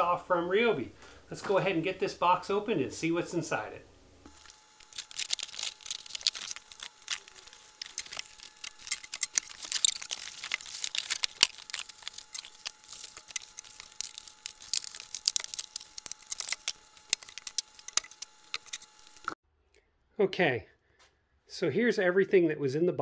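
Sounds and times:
cardboard and foam rustling: 0:04.3 - 0:19.4.

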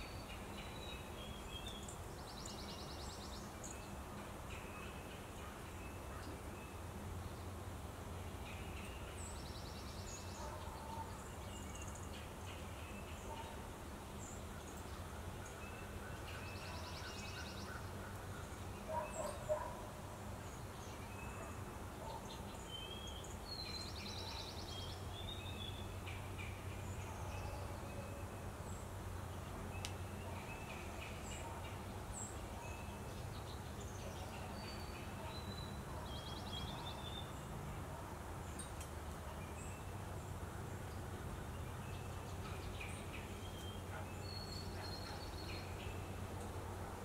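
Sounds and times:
songbirds chirping: 0:00.0 - 0:47.0.

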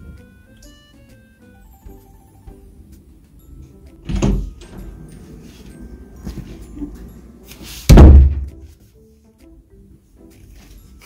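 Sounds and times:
loud thump: 0:07.9 - 0:08.7.

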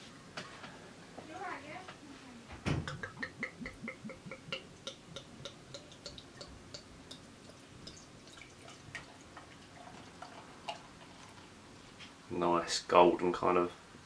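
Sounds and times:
ale glugging from glass bottle: 0:02.9 - 0:11.5.

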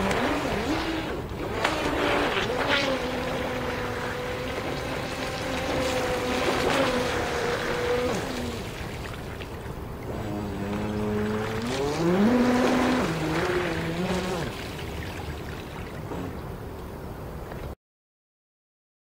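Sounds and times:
electric motor whining: 0:00.0 - 0:08.7, 0:10.1 - 0:14.6.

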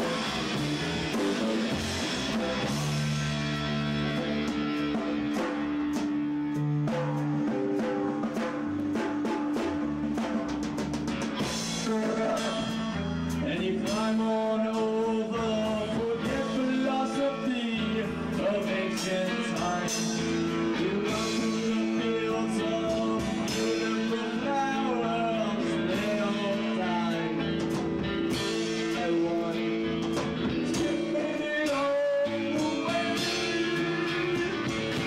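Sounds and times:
bass guitar: 0:00.0 - 0:35.0
drum kit with cymbal strikes: 0:00.0 - 0:35.0
electric guitar: 0:00.0 - 0:35.0.

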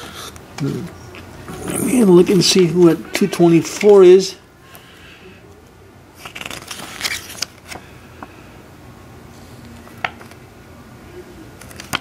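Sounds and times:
paper rustling: 0:06.2 - 0:07.9, 0:11.6 - 0:12.0.

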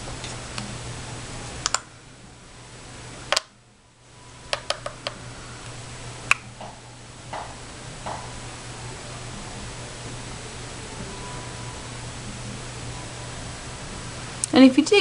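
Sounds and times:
makeup containers clicking: 0:04.6 - 0:05.2.

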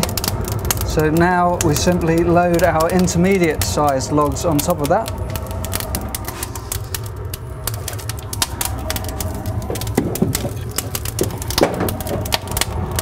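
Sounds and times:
fire crackling: 0:00.0 - 0:13.0
fire roaring: 0:00.0 - 0:13.0.

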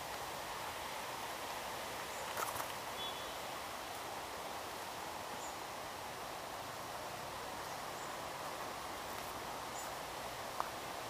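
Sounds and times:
forest rushing hiss: 0:00.0 - 0:11.0
faint high chirps: 0:03.0 - 0:03.4.

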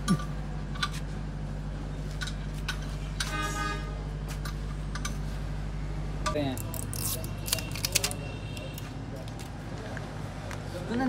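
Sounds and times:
steady low hum: 0:00.0 - 0:11.0
vehicle horn toot: 0:03.2 - 0:04.1, 0:07.3 - 0:08.9.

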